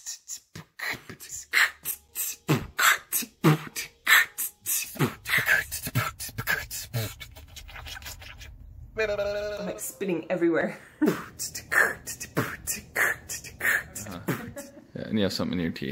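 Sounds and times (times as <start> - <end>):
woman beatboxing: 0.0 - 8.4, 11.0 - 14.7.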